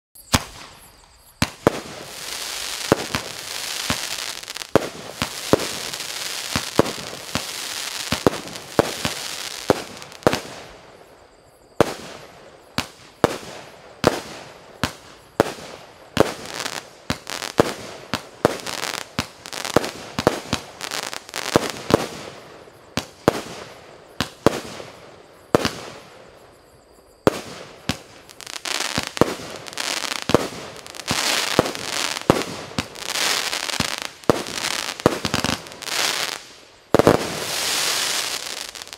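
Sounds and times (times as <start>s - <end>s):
firework crackling hiss: 0.2s - 11.2s, 11.8s - 26.3s, 27.4s - 38.9s
firework launch bangs and bursts: 0.3s - 10.7s, 27.3s - 38.9s.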